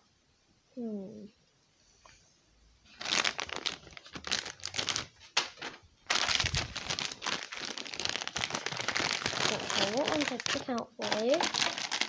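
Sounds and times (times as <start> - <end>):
plastic packets crinkling: 2.9 - 12.0.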